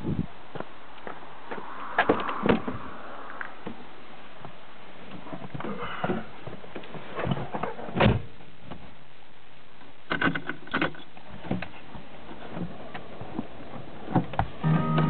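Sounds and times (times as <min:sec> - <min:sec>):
steady low hiss: 0:00.0 - 0:15.0
sharp clicks and knocks: 0:10.1 - 0:14.5.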